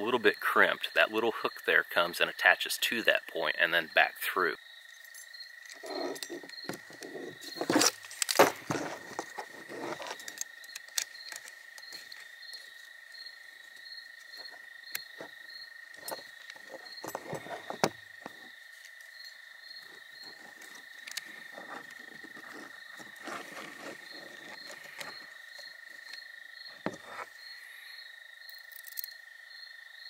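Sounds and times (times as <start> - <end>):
insects chirring: 0.0 - 30.0
metal frame knocks and clinks: 5.1 - 12.2, 16.0 - 18.5.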